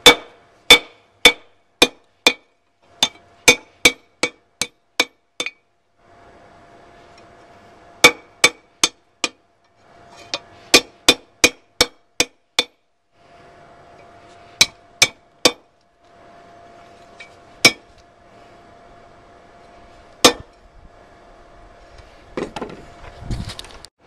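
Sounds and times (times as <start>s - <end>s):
hammer striking metal on anvil: 0.0s - 5.6s, 8.0s - 9.4s, 10.3s - 12.8s, 14.6s - 15.7s, 17.2s - 17.9s, 20.2s - 20.5s
faint steady hum: 0.0s - 23.9s.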